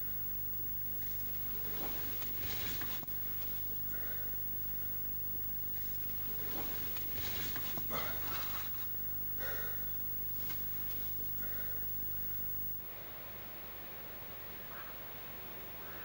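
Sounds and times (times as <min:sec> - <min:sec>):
steady low hum: 0:00.0 - 0:16.0
person breathing: 0:01.4 - 0:05.1, 0:05.8 - 0:12.6.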